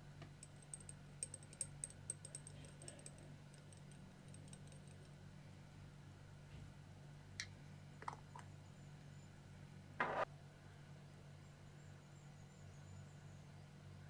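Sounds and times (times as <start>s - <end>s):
low steady hum: 0.0s - 14.0s
tweezers clinking on glass jar: 0.4s - 5.2s.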